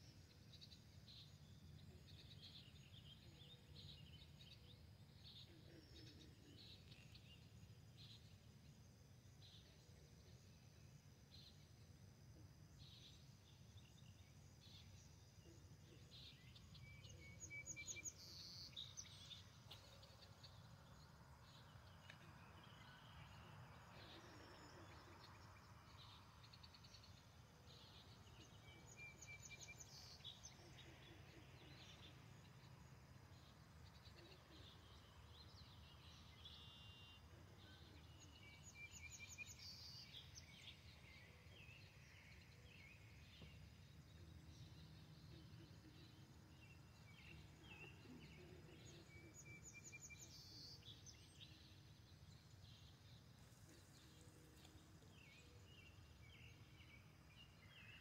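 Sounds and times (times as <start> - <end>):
songbird singing: 0.0 - 58.0
bird chirps: 15.9 - 58.0.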